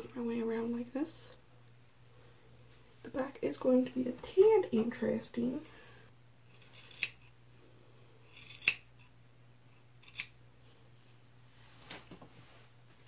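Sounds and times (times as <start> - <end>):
scissors snipping hair: 6.6 - 7.3, 8.4 - 8.9.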